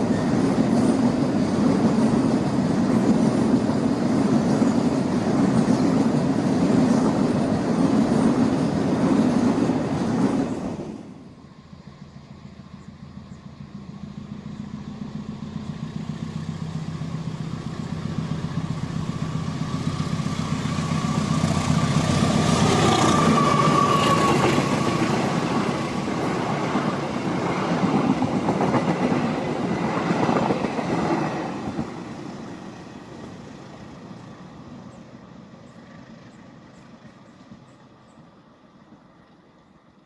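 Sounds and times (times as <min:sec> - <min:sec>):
train wheels clattering over rails: 0:00.0 - 0:11.2, 0:19.0 - 0:33.4
diesel locomotive engine drone: 0:00.0 - 0:40.0.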